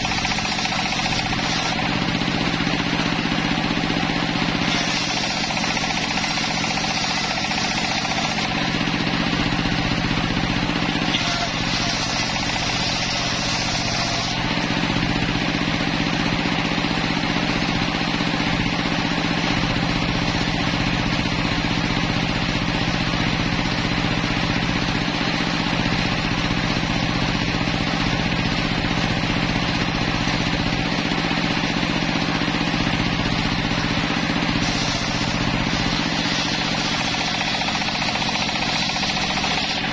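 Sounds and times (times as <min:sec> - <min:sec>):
circular saw blade ripping timber: 0:00.0 - 0:02.7, 0:03.3 - 0:08.8, 0:10.9 - 0:14.8, 0:34.5 - 0:39.9
machine hum: 0:00.0 - 0:39.9.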